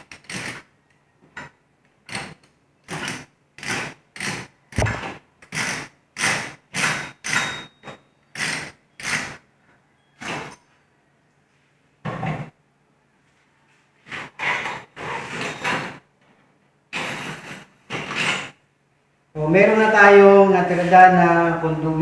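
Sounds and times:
pipe threader ratcheting: 0.0 - 0.6.

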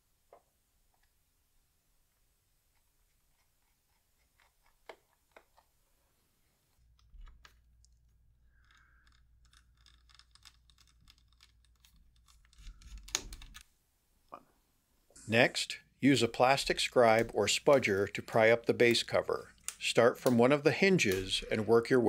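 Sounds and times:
screwdriver clicks and scrapes: 8.6 - 13.6.

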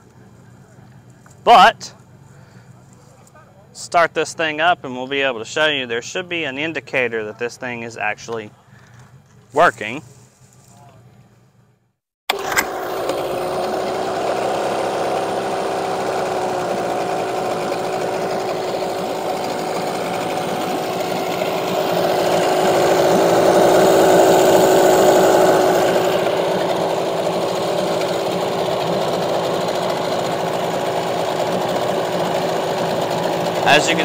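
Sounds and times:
outboard motor running: 12.3 - 34.0.

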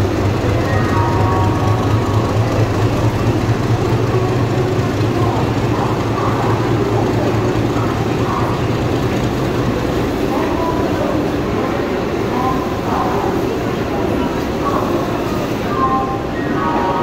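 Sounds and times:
diesel generator droning: 0.0 - 9.7
station noise: 0.0 - 17.0.

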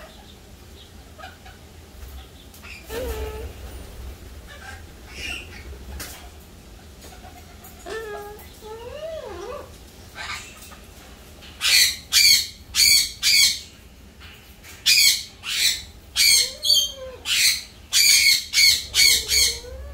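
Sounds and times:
cockatoo squawking: 2.6 - 6.4, 14.9 - 19.9.

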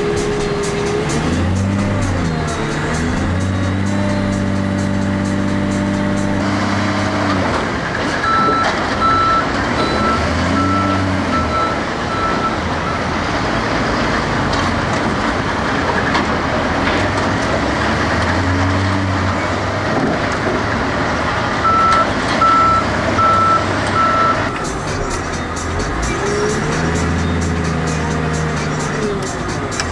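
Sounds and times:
diesel engine running: 0.0 - 29.9
reversing alarm beeping: 8.2 - 13.1, 21.6 - 24.6.

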